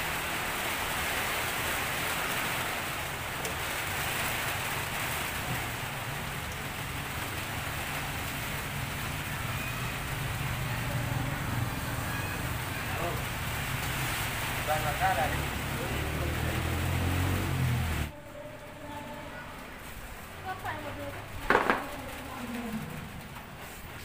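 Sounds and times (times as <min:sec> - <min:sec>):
steady rain: 0:00.0 - 0:24.0.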